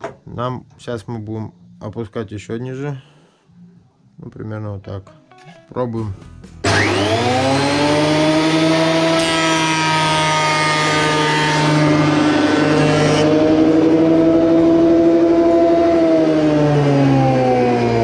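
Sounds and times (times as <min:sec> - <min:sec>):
planer motor whine: 0:06.6 - 0:18.0.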